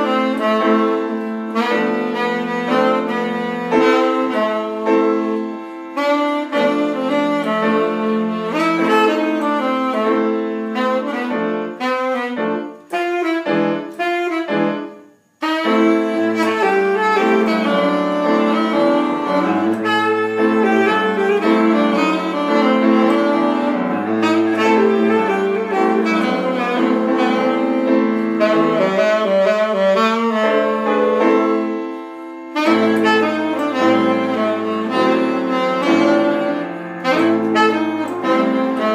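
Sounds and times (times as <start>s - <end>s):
piano accompaniment: 0.0s - 38.9s
saxophone playing jazzy melody: 0.0s - 38.9s.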